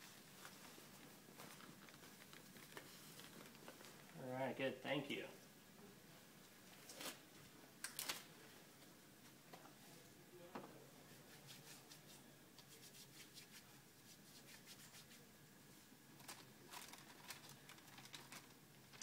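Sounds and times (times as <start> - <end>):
plastic-wrapped package rustling: 0.3 - 4.2, 16.2 - 19.0
hands rubbing together: 11.1 - 15.3.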